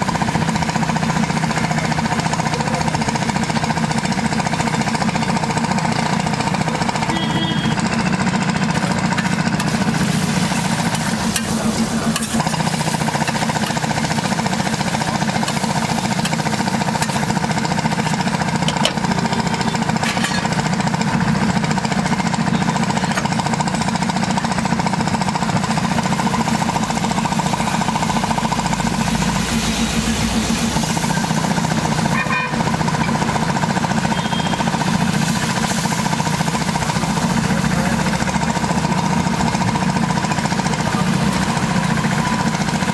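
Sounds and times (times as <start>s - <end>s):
low mechanical rumble: 0.0s - 42.9s
eggs sizzling on griddle: 8.2s - 22.3s, 25.0s - 32.1s, 33.8s - 37.8s
spatula stirring: 8.9s - 19.1s.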